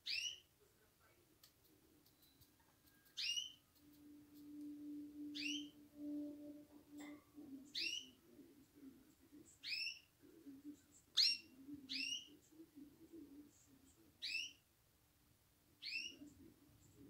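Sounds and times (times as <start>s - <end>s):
small birds call notes: 0.0s - 0.5s, 2.1s - 8.2s, 14.2s - 14.6s, 15.8s - 16.2s.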